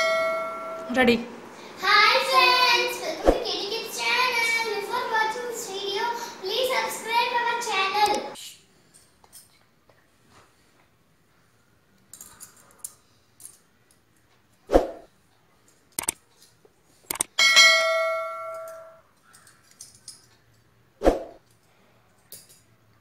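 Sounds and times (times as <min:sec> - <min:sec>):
clothespins clicking and clattering: 0:12.0 - 0:14.0, 0:16.0 - 0:17.3, 0:18.5 - 0:20.7, 0:21.4 - 0:22.8
bell-like ding: 0:17.4 - 0:19.0.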